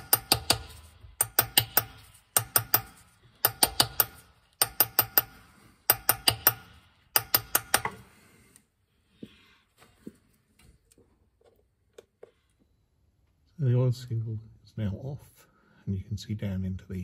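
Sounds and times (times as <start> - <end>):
hammer striking metal punch: 0.0 - 8.0.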